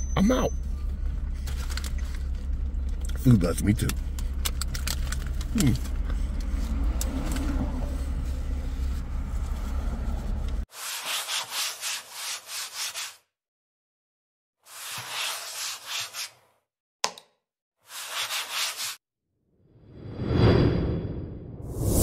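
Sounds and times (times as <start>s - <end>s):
low car cabin rumble: 0.0s - 10.6s
scratchy rubbing sound: 10.7s - 13.2s, 14.7s - 16.4s, 17.9s - 19.0s.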